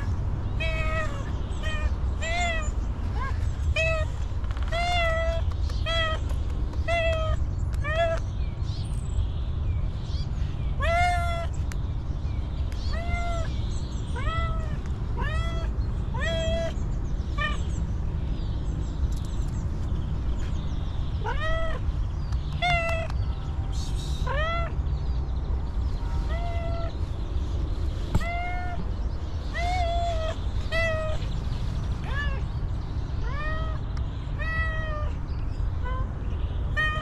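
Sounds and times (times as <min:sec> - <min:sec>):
steady low rumble: 0:00.0 - 0:37.0
cat meowing: 0:00.6 - 0:06.2, 0:12.9 - 0:13.5, 0:14.1 - 0:16.8, 0:26.1 - 0:26.9, 0:28.2 - 0:28.8, 0:29.5 - 0:31.3, 0:34.4 - 0:35.1, 0:36.7 - 0:37.0.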